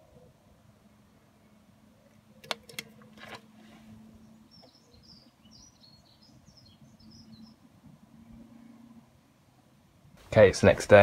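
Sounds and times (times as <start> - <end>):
birds chirping: 1.3 - 8.4.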